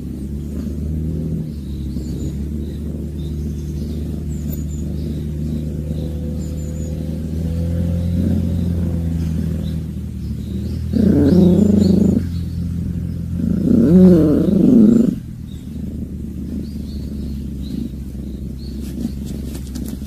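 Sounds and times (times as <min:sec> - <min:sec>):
cat growling yowls: 0:10.8 - 0:12.3, 0:13.2 - 0:15.3.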